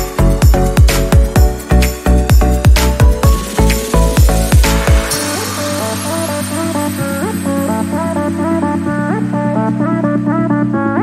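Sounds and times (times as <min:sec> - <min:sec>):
deep kick drum beat: 0:00.0 - 0:05.3
synth bass line: 0:00.0 - 0:10.8.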